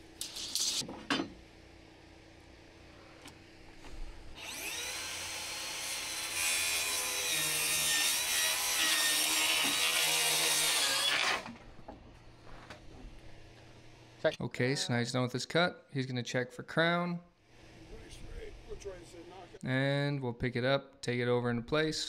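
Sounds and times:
circular saw cutting wood: 0:04.4 - 0:11.6.

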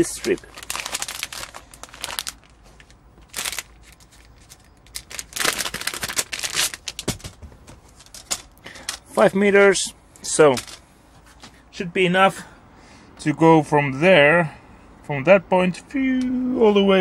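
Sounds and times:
foil bag crinkling: 0:00.0 - 0:07.4.

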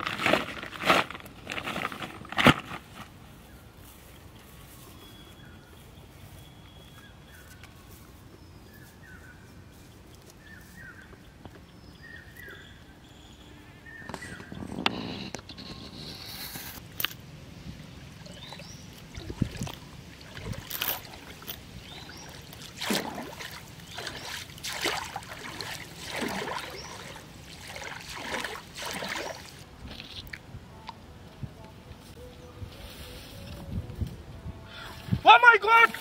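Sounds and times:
pond water splashing: 0:16.8 - 0:30.5.

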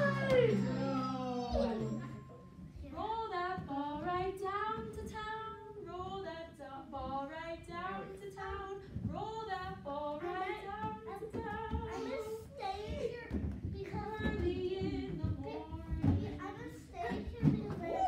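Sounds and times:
woman and children singing: 0:02.9 - 0:16.6.

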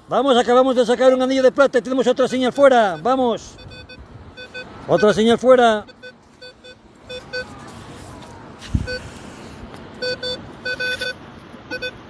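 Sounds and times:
metal detector short beeps: 0:02.9 - 0:05.2, 0:05.8 - 0:07.5, 0:08.8 - 0:09.1, 0:10.0 - 0:12.0.

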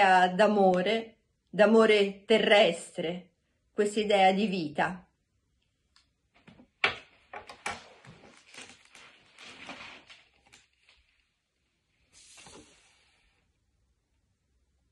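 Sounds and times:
clothing rustle and shuffling: 0:06.3 - 0:13.3
short rustling hiss: 0:11.9 - 0:13.4.

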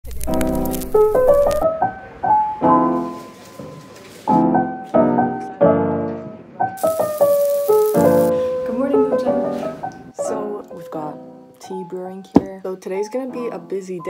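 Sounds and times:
piano music: 0:00.1 - 0:14.0.

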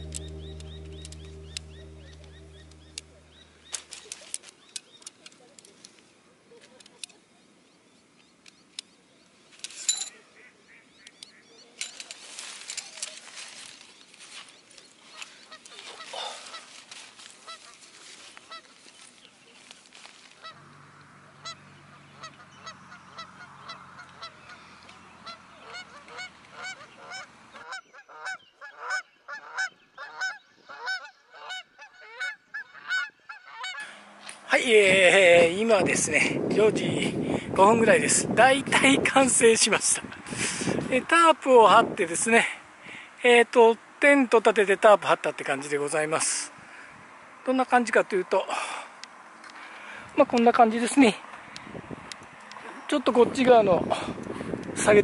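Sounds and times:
tent nylon and poles rustling: 0:09.5 - 0:10.2, 0:11.8 - 0:20.6
waterfowl honking: 0:20.4 - 0:34.0.

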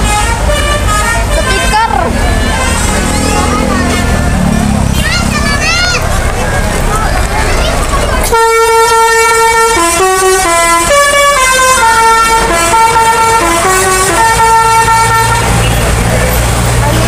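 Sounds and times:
bus horn playing a melody: 0:00.0 - 0:04.3, 0:08.3 - 0:16.0.

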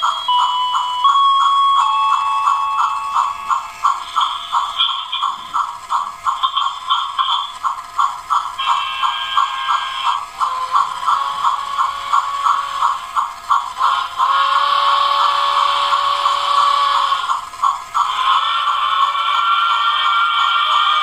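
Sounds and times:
electronic steam locomotive chuffing: 0:00.0 - 0:21.0
steady train running sound: 0:00.0 - 0:21.0
train whistle: 0:08.6 - 0:12.9, 0:13.8 - 0:17.3, 0:18.0 - 0:21.0.

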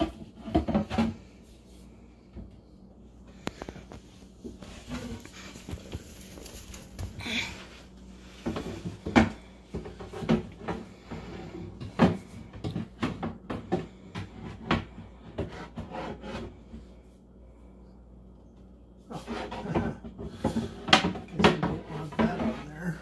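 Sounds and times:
board scraping against cabinet: 0:08.4 - 0:16.7, 0:19.1 - 0:23.0.

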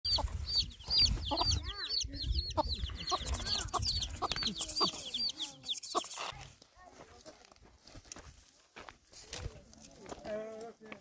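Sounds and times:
chicks peeping: 0:00.0 - 0:06.5
hen clucking: 0:00.0 - 0:06.5.

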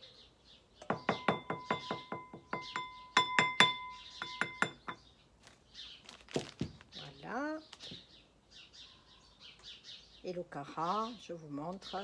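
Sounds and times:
tapping on glass bowl: 0:00.8 - 0:05.0.

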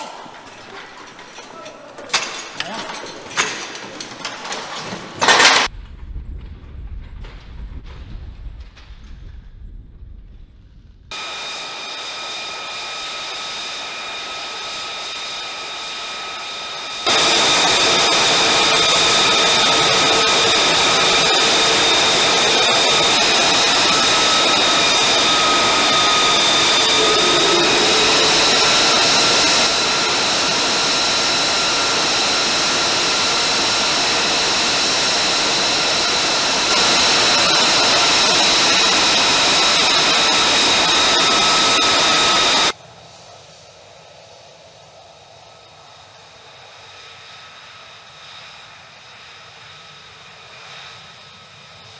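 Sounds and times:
jet engine rushing: 0:10.0 - 0:51.9
high jet whine: 0:11.1 - 0:51.9.

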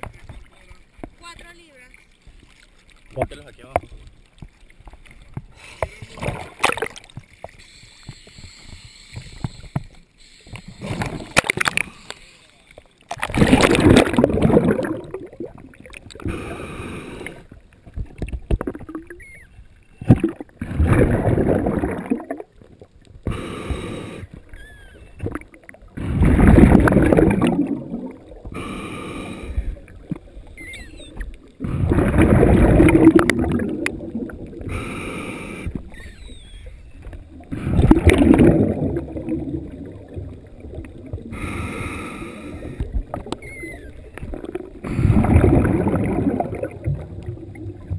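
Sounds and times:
regulator hissing inhalations: 0:07.6 - 0:11.1, 0:11.8 - 0:12.6, 0:16.3 - 0:17.5, 0:23.3 - 0:24.4, 0:28.6 - 0:29.8, 0:34.7 - 0:36.3, 0:41.3 - 0:42.9
bubbling exhalations underwater: 0:13.1 - 0:17.5, 0:18.4 - 0:19.2, 0:20.0 - 0:22.6, 0:23.2 - 0:28.8, 0:31.0 - 0:34.9, 0:37.2 - 0:41.7, 0:42.6 - 0:47.9.

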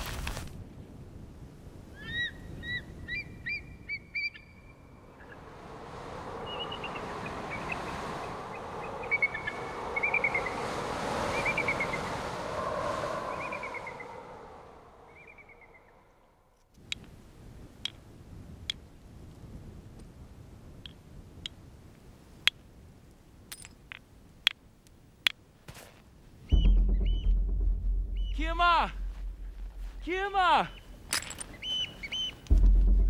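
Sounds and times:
rushing wind-like noise: 0:04.8 - 0:22.3
birds calling and chirping: 0:06.4 - 0:10.7, 0:13.2 - 0:16.4, 0:30.6 - 0:32.5.

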